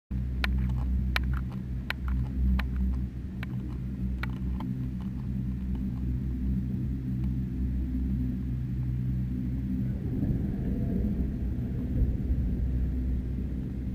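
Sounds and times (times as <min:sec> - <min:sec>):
machinery hum and rumble: 0:00.1 - 0:13.9
sharp clicks: 0:00.4 - 0:06.1.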